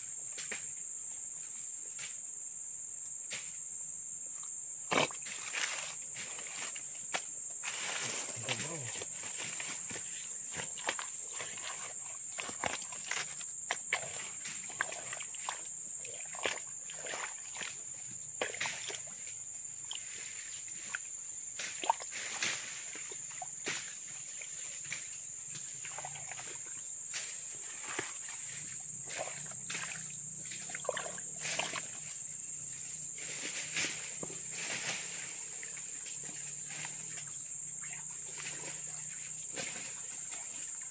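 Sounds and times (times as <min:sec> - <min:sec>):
insects droning: 0:00.0 - 0:40.9
leaves rustling: 0:05.2 - 0:13.4, 0:31.3 - 0:37.3
hand squelching in muddy water: 0:07.7 - 0:19.2, 0:21.7 - 0:23.5, 0:25.8 - 0:26.8, 0:27.5 - 0:32.1.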